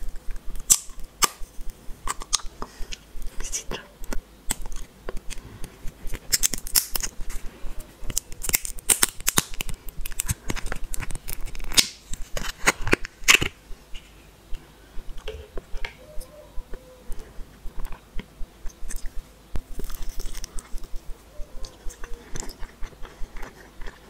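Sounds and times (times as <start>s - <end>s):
plastic capsule crackling and clicking: 8.0s - 13.6s.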